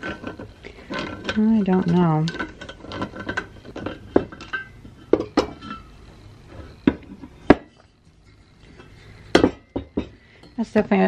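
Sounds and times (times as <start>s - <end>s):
metal parts clinking: 0.0s - 6.0s.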